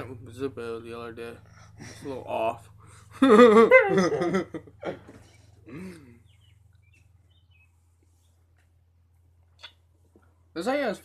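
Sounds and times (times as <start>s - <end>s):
man laughing: 3.1s - 6.1s.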